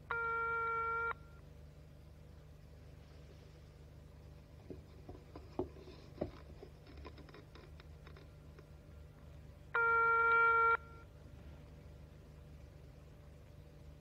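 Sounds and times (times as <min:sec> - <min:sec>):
telephone line signal tone: 0:00.1 - 0:01.4, 0:09.8 - 0:11.1.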